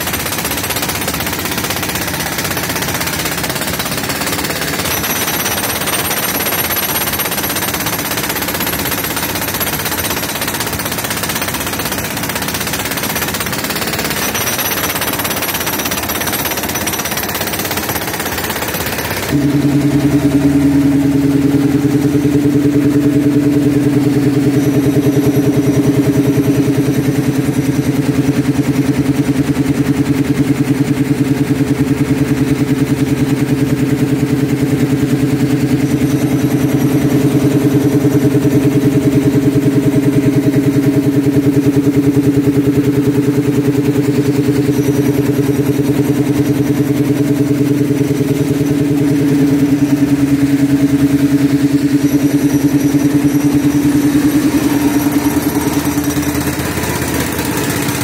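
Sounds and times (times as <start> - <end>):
air compressor running: 0.0 - 58.0.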